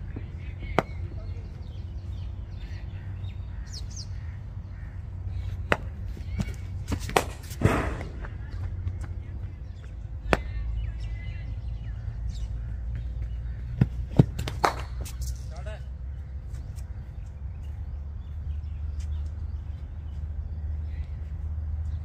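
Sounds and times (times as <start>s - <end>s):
cricket bat striking ball: 5.6s - 8.4s, 10.2s - 10.6s, 13.8s - 15.0s.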